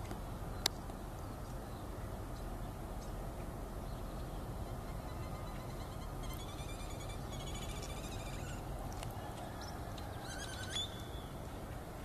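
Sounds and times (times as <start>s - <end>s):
distant animal calls: 4.6s - 11.3s.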